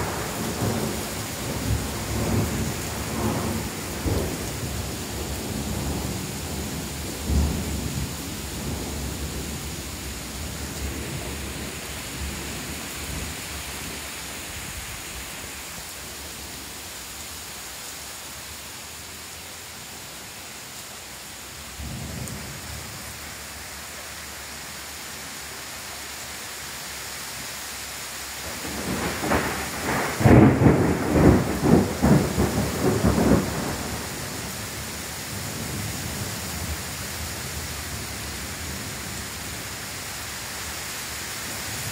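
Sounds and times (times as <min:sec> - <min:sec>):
loud thunderclap: 0:00.0 - 0:09.6, 0:28.6 - 0:34.3
thunder rumbling: 0:00.0 - 0:14.8, 0:28.4 - 0:36.8
heavy rain pouring: 0:00.0 - 0:41.9.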